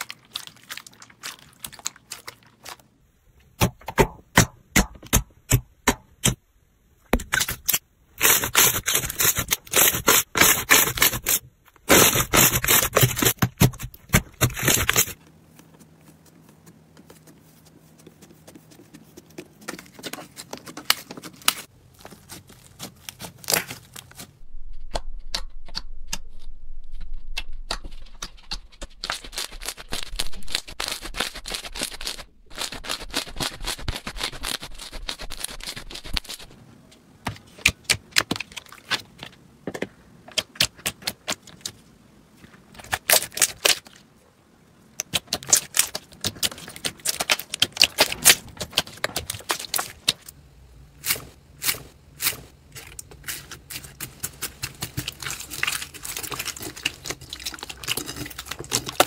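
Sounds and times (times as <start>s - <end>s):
slime crackling and popping: 51.0s - 59.0s.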